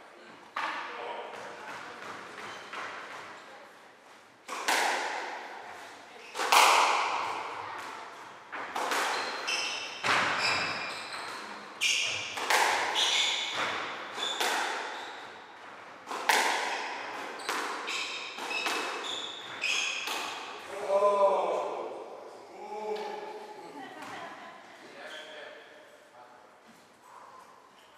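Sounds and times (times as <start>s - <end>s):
sneakers squeaking on wooden floor: 1.4s - 3.4s, 8.8s - 15.7s, 16.8s - 20.5s
squash ball hits echoing: 4.5s - 5.4s, 6.3s - 9.3s, 10.0s - 15.0s, 16.0s - 20.8s.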